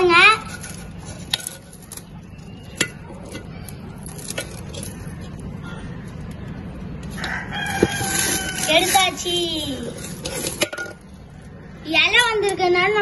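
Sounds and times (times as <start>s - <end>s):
metal tongs clinking on clay pot: 0.4s - 5.4s.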